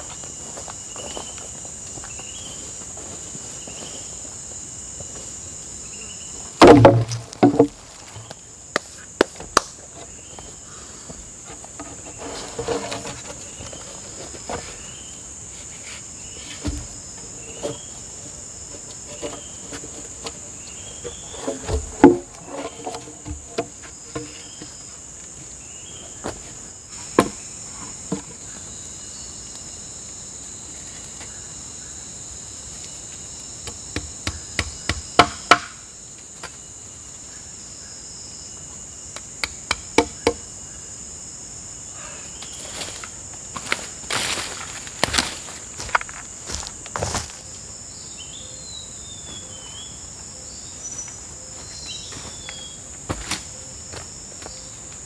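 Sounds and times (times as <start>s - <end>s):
insects droning: 0.0s - 55.0s
bamboo poles knocking: 6.6s - 8.3s, 21.4s - 24.4s, 33.6s - 35.8s, 39.4s - 40.4s.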